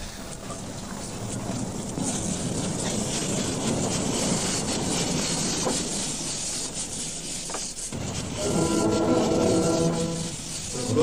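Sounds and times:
steam locomotive moving slowly: 0.0s - 11.0s.

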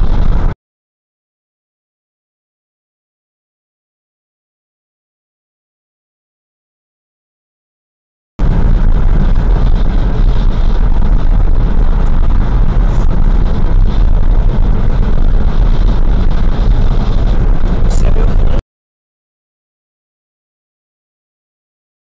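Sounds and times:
car road noise: 0.0s - 0.6s, 8.4s - 18.6s.

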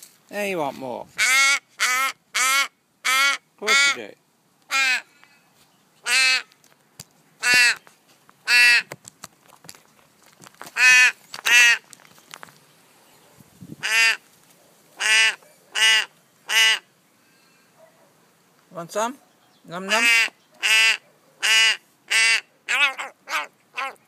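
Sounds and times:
young raven begging calls: 1.1s - 5.2s, 6.0s - 6.6s, 7.4s - 8.9s, 10.7s - 12.0s, 13.4s - 17.0s, 19.5s - 24.0s.

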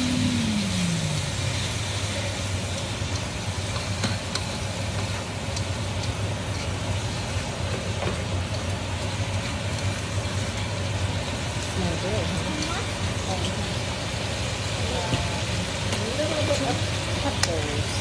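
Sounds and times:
meat sizzling in a wok: 0.0s - 18.0s
steady low hum: 0.0s - 18.0s
chopsticks tapping a pan: 2.8s - 6.7s.

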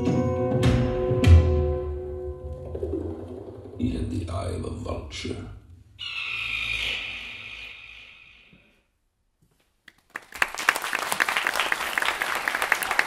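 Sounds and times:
audience applause: 9.9s - 13.0s.

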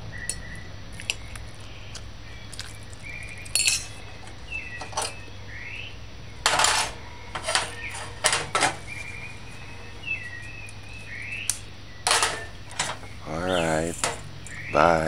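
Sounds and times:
cookware clinking and knocking: 3.6s - 3.9s, 6.4s - 8.8s, 12.0s - 13.1s.

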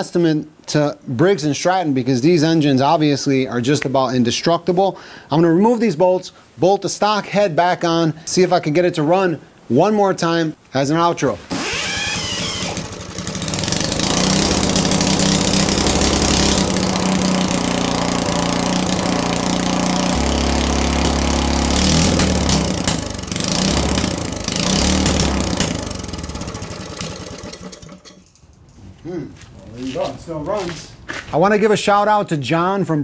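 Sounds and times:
small engine running: 11.5s - 28.1s.

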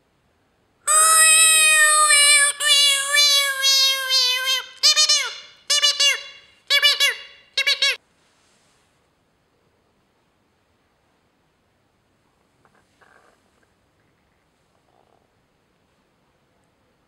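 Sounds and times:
person wailing in falsetto: 0.9s - 5.4s
person yelping in falsetto: 0.9s - 5.4s.

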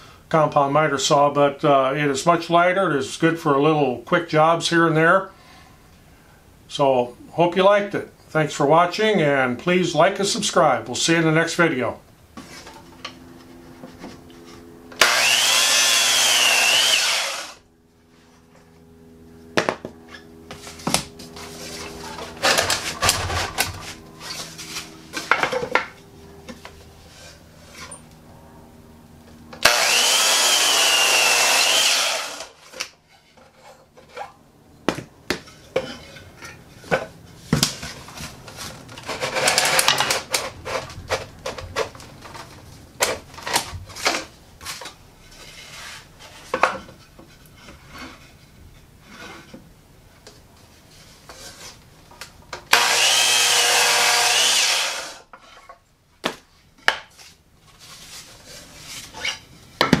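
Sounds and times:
miter saw cutting wood: 14.9s - 17.7s, 29.6s - 32.9s, 52.7s - 55.3s.

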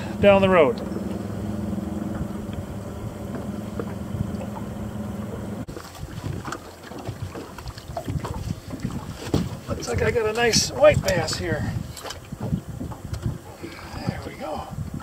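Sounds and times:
steady low hum: 0.0s - 6.1s
water sounds around boat: 0.0s - 15.0s
wind buffeting microphone: 0.0s - 15.0s.

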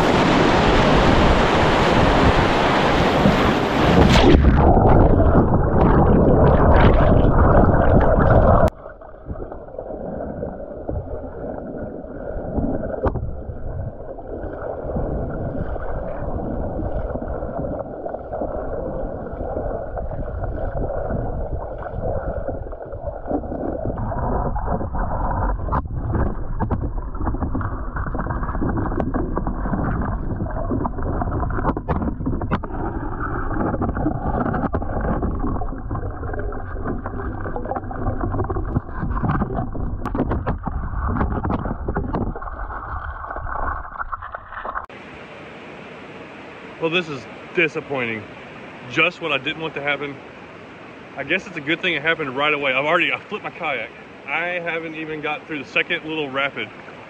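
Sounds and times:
whitewater rapids rushing: 0.0s - 5.0s
muffled current underwater: 0.0s - 46.8s.

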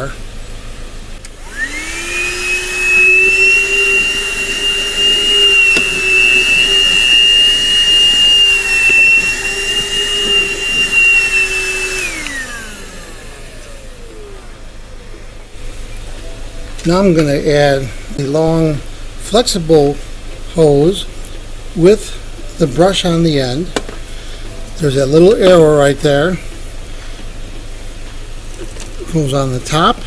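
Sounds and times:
vacuum motor winding down: 0.0s - 20.2s
handheld vacuum whining: 1.2s - 16.1s.

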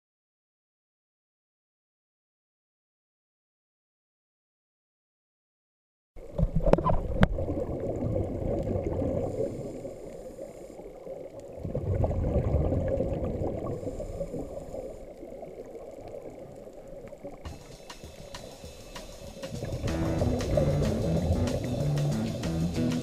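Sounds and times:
bubbles gurgling underwater: 6.2s - 9.9s, 10.9s - 17.6s
regulator hiss: 17.5s - 23.0s.

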